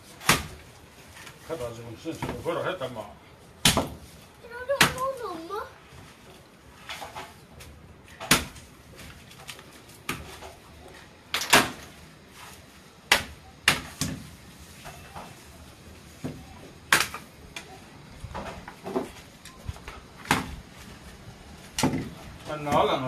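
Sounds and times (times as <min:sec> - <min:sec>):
machete chopping coconut husk: 0:00.2 - 0:00.6, 0:03.6 - 0:04.1, 0:08.1 - 0:09.1, 0:10.0 - 0:10.5, 0:11.3 - 0:11.9, 0:13.1 - 0:14.3, 0:16.2 - 0:17.2, 0:20.2 - 0:20.6.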